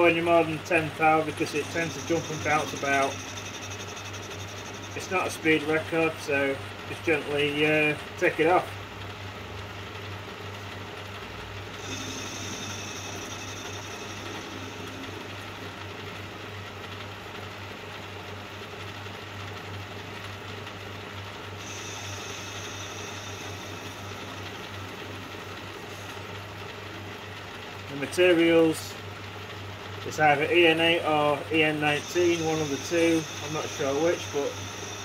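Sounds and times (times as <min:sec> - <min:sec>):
thin high cutting whine: 0:00.0 - 0:08.8, 0:11.6 - 0:17.0, 0:21.6 - 0:29.0, 0:30.0 - 0:35.0
lathe humming: 0:00.0 - 0:35.0.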